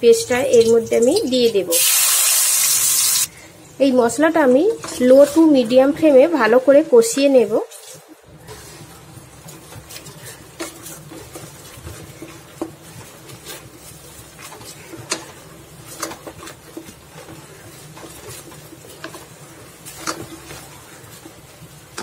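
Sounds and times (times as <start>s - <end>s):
wooden spatula scraping a pan: 4.6s - 6.1s, 7.0s - 22.0s.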